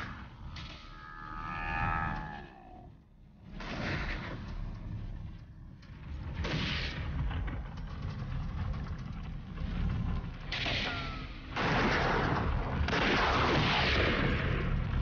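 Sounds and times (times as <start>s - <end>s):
heavy gunfire: 10.5s - 15.0s
rifle shots: 11.5s - 14.7s.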